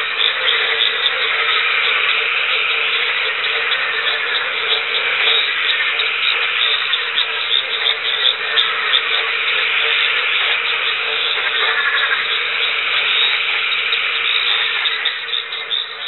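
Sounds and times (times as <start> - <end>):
chorus of frogs calling: 0.0 - 16.0.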